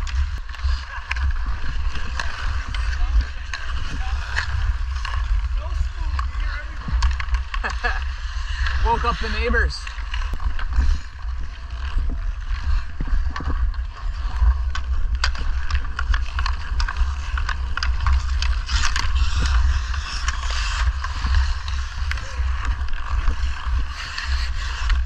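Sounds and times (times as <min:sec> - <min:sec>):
hockey sticks clicking on puck: 0:00.0 - 0:25.0
skates scraping on ice: 0:00.0 - 0:25.0
wind rumble on microphone: 0:00.0 - 0:25.0.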